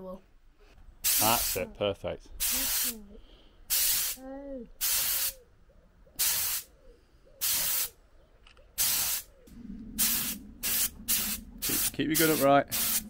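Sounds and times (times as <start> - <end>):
spray gun hissing bursts: 1.0 - 1.6, 2.4 - 3.0, 3.7 - 4.2, 4.8 - 5.4, 6.2 - 6.7, 7.4 - 7.9, 8.8 - 9.3, 10.0 - 13.0
low steady hum: 9.5 - 13.0.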